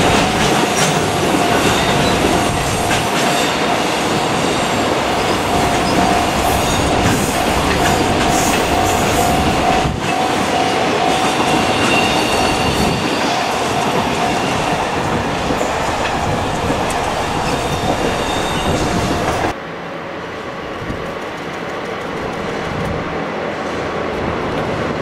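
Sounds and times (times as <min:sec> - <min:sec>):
freight train wheels clattering: 0:00.0 - 0:19.6.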